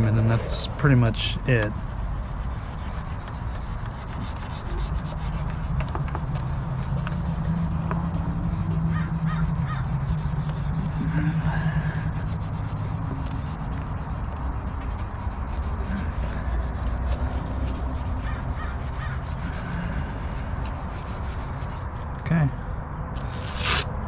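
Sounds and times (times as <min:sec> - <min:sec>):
wet sanding plastic: 0:00.9 - 0:22.1
crows cawing: 0:08.9 - 0:09.8, 0:18.2 - 0:19.2.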